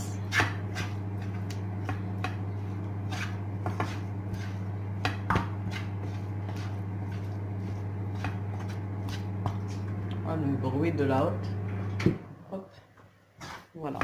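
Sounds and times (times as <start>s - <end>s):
range hood fan humming: 0.0s - 14.0s
spatula scraping frying pan: 0.2s - 1.6s, 2.5s - 9.9s, 13.4s - 13.8s.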